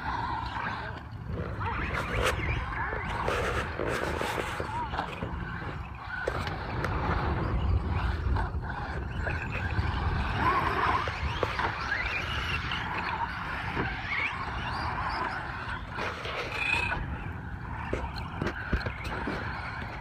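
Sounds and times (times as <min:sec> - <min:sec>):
toy car motors whining: 0:00.0 - 0:20.0.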